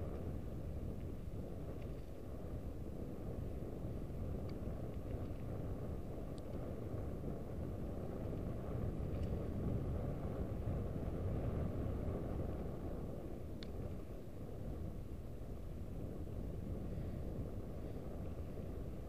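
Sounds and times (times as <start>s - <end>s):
bike tyres rolling on trail: 0.0s - 19.0s
wind on microphone: 0.0s - 19.0s
faint clicks: 4.4s - 5.6s, 6.3s - 6.7s, 9.0s - 9.4s, 13.6s - 14.2s.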